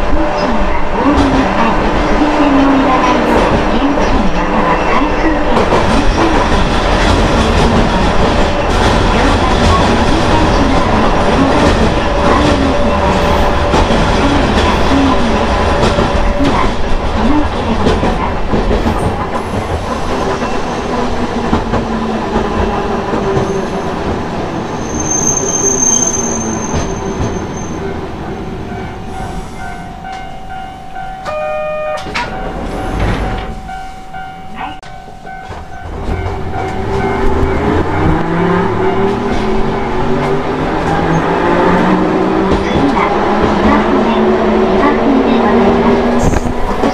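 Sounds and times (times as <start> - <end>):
high wheel squeal: 24.7 - 28.0.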